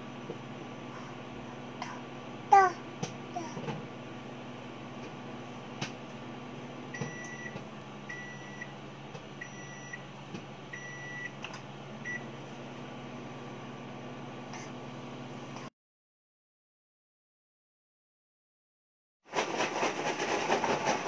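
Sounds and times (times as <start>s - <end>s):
microwave oven humming: 0.0s - 15.7s
microwave beeps: 6.9s - 8.8s, 9.4s - 10.1s, 10.7s - 12.4s.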